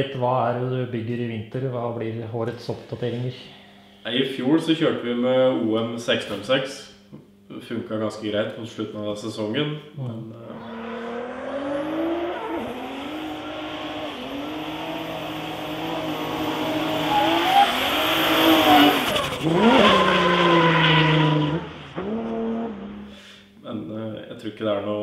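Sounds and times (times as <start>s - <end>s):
car engine revving hard: 10.5s - 23.1s.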